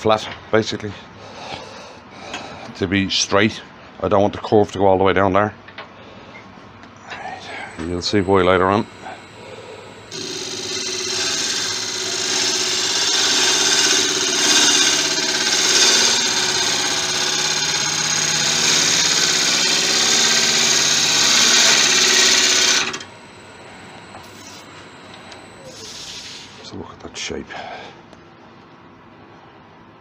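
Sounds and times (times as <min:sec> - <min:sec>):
lathe humming: 0:07.1 - 0:26.7
gouge shearing spinning wood: 0:07.5 - 0:26.4.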